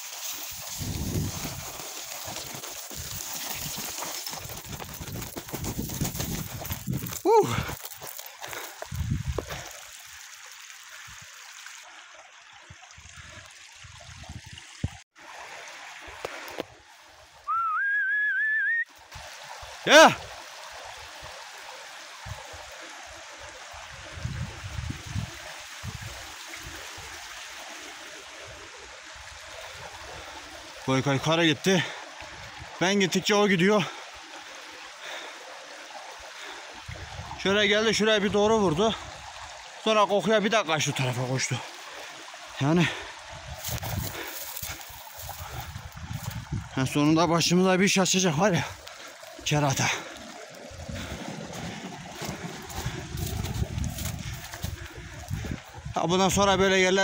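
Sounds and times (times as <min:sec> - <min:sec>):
footsteps crunching on scree: 0:00.6 - 0:09.7, 0:43.6 - 0:46.4, 0:51.0 - 0:55.6.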